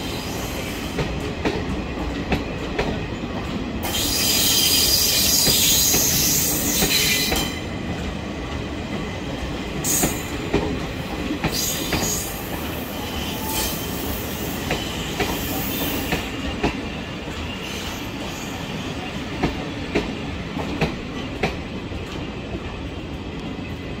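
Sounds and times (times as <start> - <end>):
train wheels squealing: 0.0 - 1.0, 3.8 - 7.6, 9.8 - 10.4, 11.4 - 19.1.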